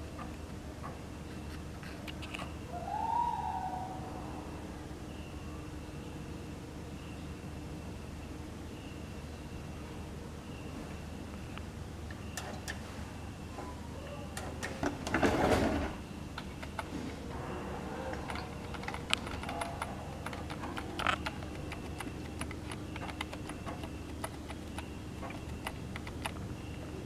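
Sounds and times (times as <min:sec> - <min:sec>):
keyboard key clicking: 0:18.2 - 0:26.4.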